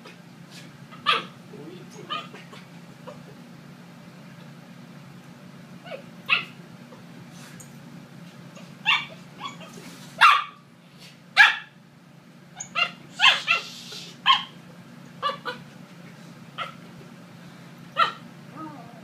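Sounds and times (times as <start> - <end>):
puppy barking and yipping: 0.9 - 1.4, 2.1 - 2.4, 5.8 - 6.6, 8.6 - 10.6, 11.4 - 11.8, 12.6 - 14.6, 15.2 - 15.6, 16.6 - 16.8, 18.0 - 18.2.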